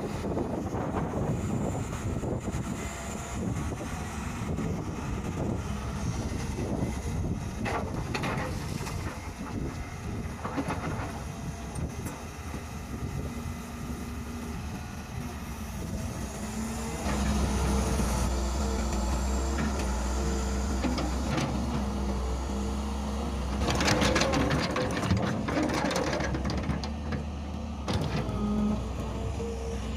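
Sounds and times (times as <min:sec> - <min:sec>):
wind on microphone: 0:00.0 - 0:16.3
excavator diesel engine running: 0:00.0 - 0:29.9.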